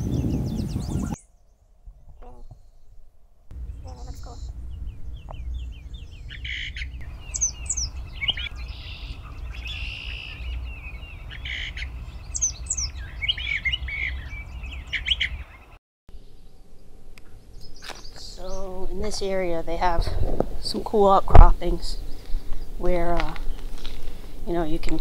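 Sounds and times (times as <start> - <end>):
bird singing varied phrases: 0.0 - 2.9, 3.6 - 16.5, 17.4 - 19.8
steady low rumble: 3.5 - 13.1, 16.1 - 24.9.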